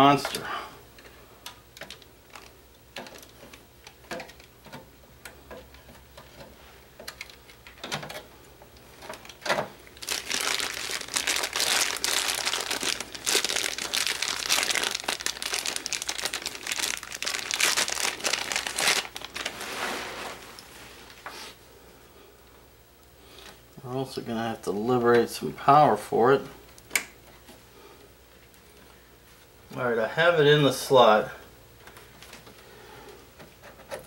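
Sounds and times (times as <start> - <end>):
plastic packaging crinkling: 1.8 - 4.5, 9.0 - 21.2.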